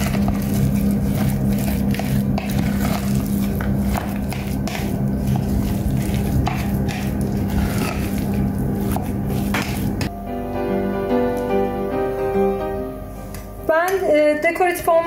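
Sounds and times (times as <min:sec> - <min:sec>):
steady low hum: 0:00.0 - 0:15.0
spoon scraping glass bowl: 0:00.1 - 0:10.0.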